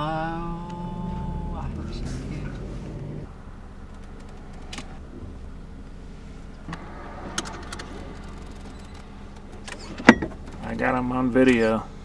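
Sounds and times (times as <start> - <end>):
car engine idling: 0.0 - 12.0
faint clicks: 3.9 - 4.9.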